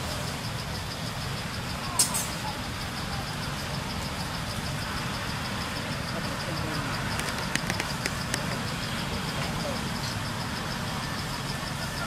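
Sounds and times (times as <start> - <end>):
sharp clicks: 7.1 - 8.6.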